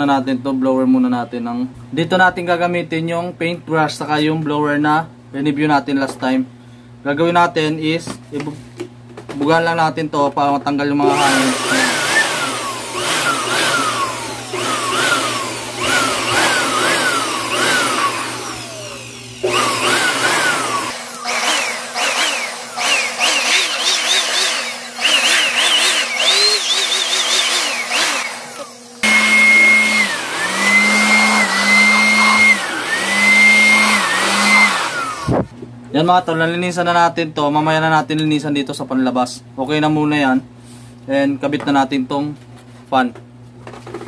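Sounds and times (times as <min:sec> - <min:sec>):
electric blower motor whine: 0:11.0 - 0:35.6.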